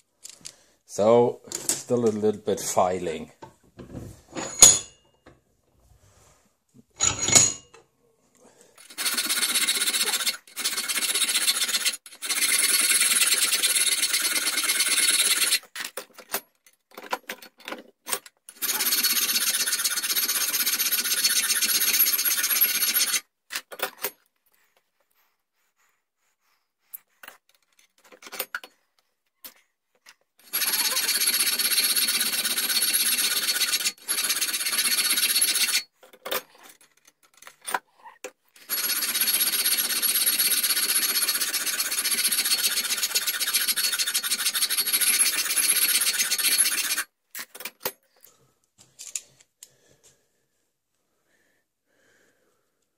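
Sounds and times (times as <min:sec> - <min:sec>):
hand file rasping on metal: 0:08.9 - 0:15.7, 0:18.6 - 0:23.2, 0:30.5 - 0:35.9, 0:38.7 - 0:47.1.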